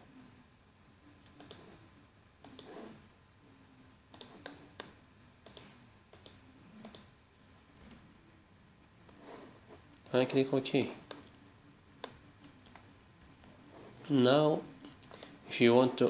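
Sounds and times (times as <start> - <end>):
computer mouse clicks: 1.2 - 1.8, 2.4 - 2.8, 4.1 - 7.1.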